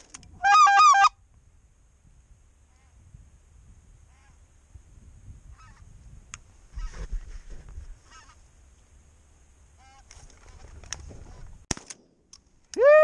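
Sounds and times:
geese honking: 0:00.4 - 0:01.2.

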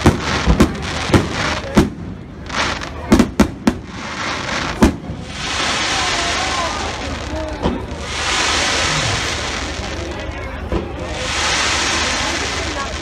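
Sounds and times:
steady hiss: 0:03.8 - 0:13.0.

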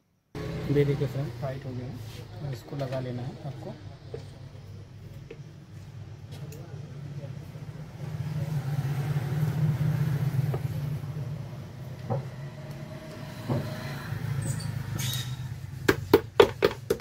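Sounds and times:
knocks on plastic housing: 0:15.9 - 0:17.0.

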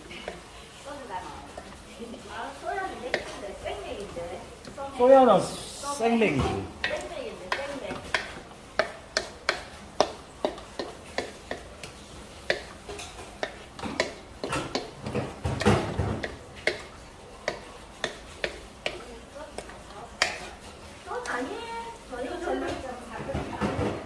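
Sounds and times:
spatula scraping metal wok: 0:19.8 - 0:21.2.

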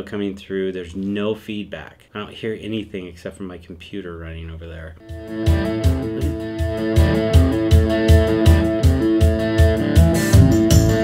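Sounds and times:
guitar music with bass beat: 0:05.0 - 0:11.0.

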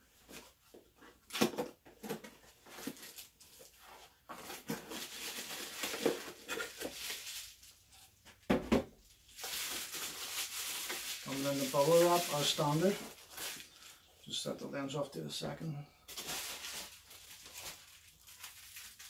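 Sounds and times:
packaging rustling: 0:00.3 - 0:08.3, 0:09.2 - 0:14.1, 0:16.1 - 0:19.0.

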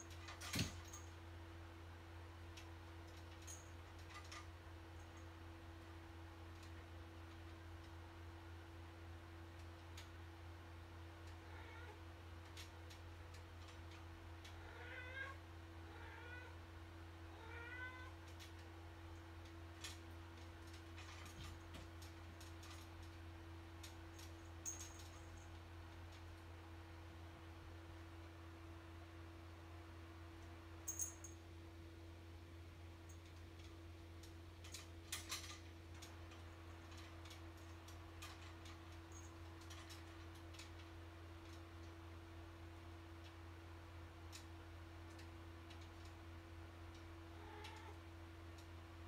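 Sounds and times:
cat meowing faintly: 0:11.4 - 0:12.0, 0:14.6 - 0:16.6, 0:17.3 - 0:18.2, 0:47.3 - 0:48.0.

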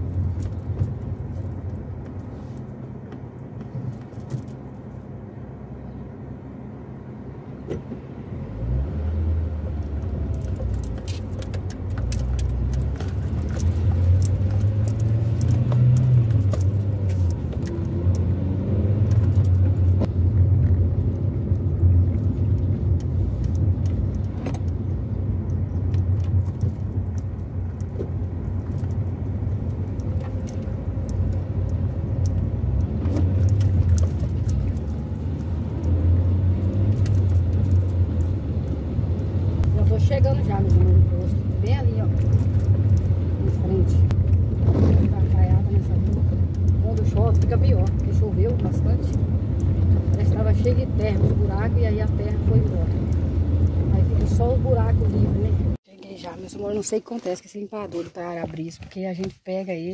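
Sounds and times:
car engine and road rumble: 0:00.0 - 0:59.9
light clicks and rattles: 0:09.8 - 0:18.3.

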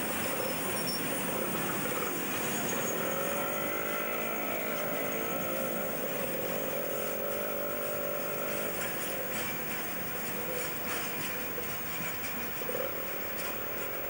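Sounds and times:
train wheels rumbling: 0:00.0 - 0:14.0
steady squealing tone: 0:00.4 - 0:11.4.

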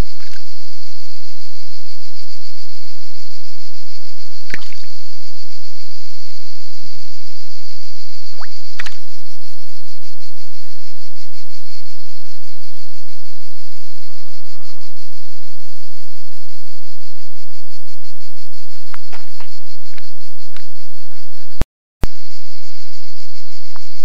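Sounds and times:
insect chorus buzzing: 0:00.0 - 0:06.3, 0:07.9 - 0:24.0
faint call: 0:14.0 - 0:15.1.

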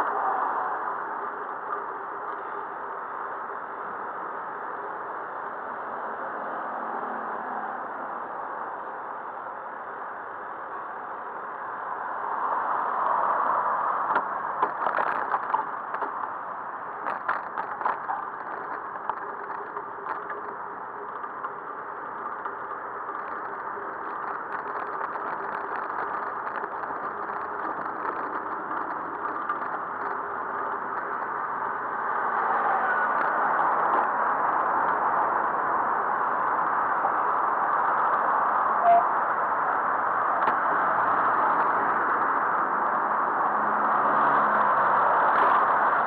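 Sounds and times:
traffic and road noise: 0:00.0 - 0:46.0
bicycle rattling and clicking: 0:14.2 - 0:16.2, 0:17.0 - 0:35.0.

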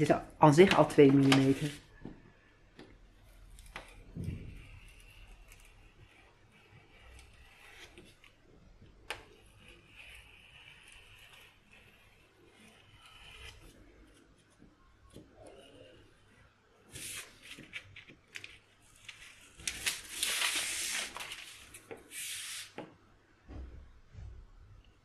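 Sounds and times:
paper rustling: 0:00.6 - 0:01.8, 0:16.9 - 0:22.8.

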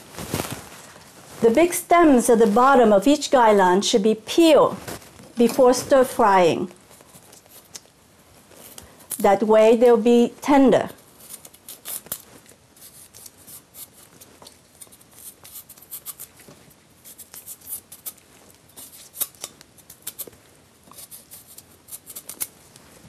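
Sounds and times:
knife peeling vegetable stems: 0:06.8 - 0:08.0, 0:11.0 - 0:22.6.

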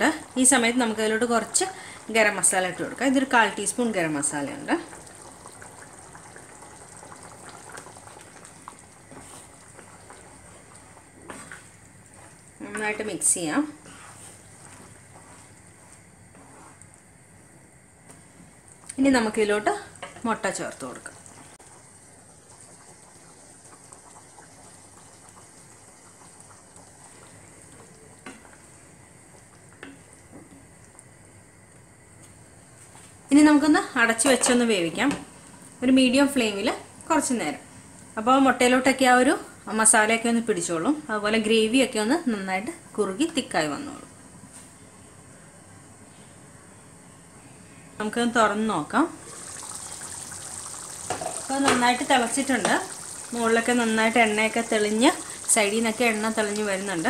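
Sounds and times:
curry simmering in a pan: 0:00.0 - 0:17.2, 0:18.5 - 0:32.0, 0:49.0 - 0:57.0
thick gravy bubbling and popping: 0:00.0 - 0:17.2, 0:18.5 - 0:31.6, 0:49.1 - 0:57.0
spoon stirring in a pan: 0:09.0 - 0:13.0.

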